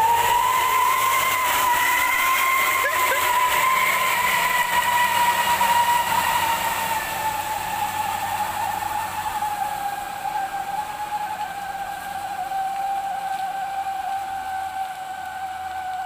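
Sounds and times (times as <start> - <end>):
dump truck drivetrain whine: 0.0 - 16.0.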